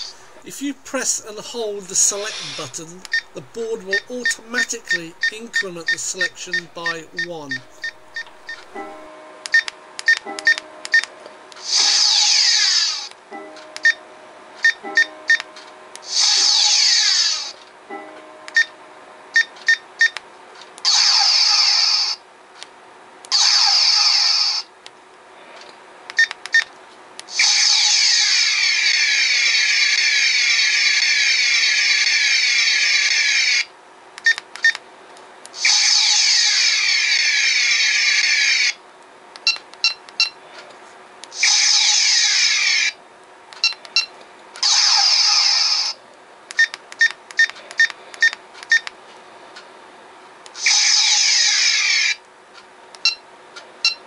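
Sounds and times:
short electronic beeps: 2.1 - 11.1.

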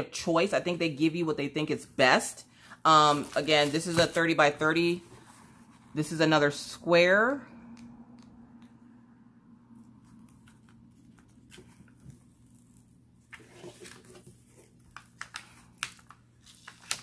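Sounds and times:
plastic film crinkling: 3.0 - 4.5, 13.7 - 17.0.

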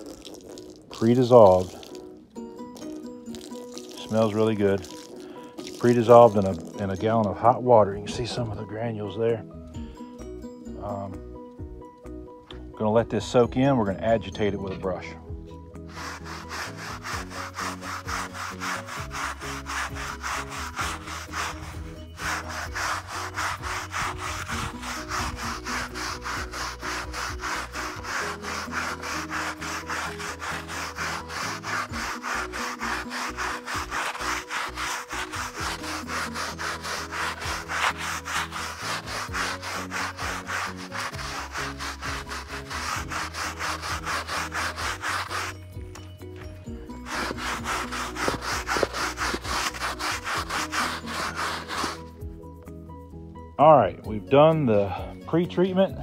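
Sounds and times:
brush scrubbing wet carpet: 0.0 - 2.1, 2.7 - 8.6, 15.9 - 52.3.

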